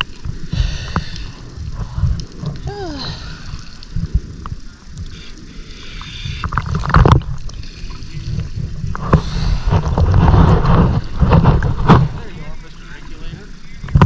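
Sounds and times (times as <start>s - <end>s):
water sloshing and gurgling: 0.0s - 14.0s.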